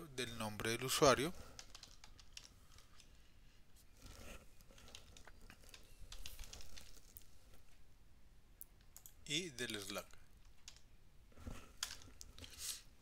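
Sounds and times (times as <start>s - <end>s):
computer keyboard keystrokes: 1.6s - 3.1s, 9.8s - 10.8s.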